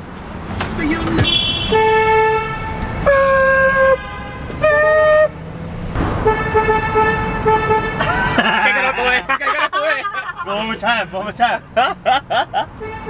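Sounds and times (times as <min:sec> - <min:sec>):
vehicle horn toots: 0:01.1 - 0:05.3, 0:06.2 - 0:08.1, 0:12.8 - 0:13.0.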